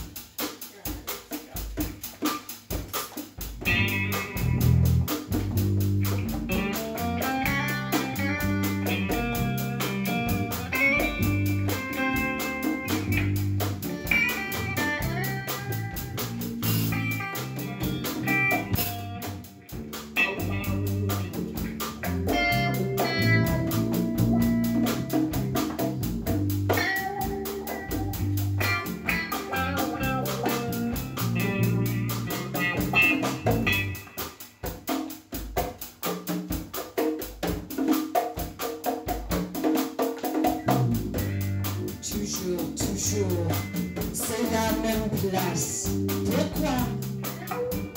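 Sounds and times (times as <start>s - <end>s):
hand drums: 0.0s - 47.9s
electric guitar: 1.6s - 35.7s, 36.5s - 47.9s
electric bass guitar: 3.4s - 34.5s, 40.3s - 47.9s.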